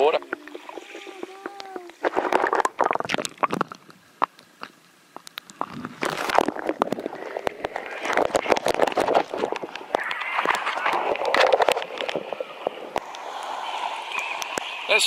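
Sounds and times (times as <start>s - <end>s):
muffled underwater gurgling: 0.0s - 4.7s, 5.5s - 15.0s
water splashing and sloshing: 0.0s - 15.0s
clicks and knocks on microphone: 5.2s - 13.0s.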